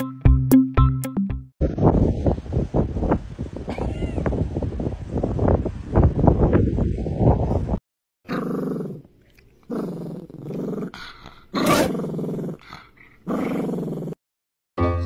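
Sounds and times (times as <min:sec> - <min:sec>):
dog growling: 0:08.3 - 0:14.2.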